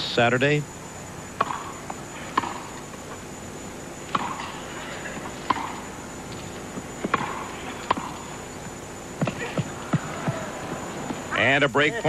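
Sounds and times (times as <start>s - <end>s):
faint background hiss: 0.0s - 12.0s
racquets hitting tennis ball: 1.3s - 3.3s, 4.0s - 11.3s.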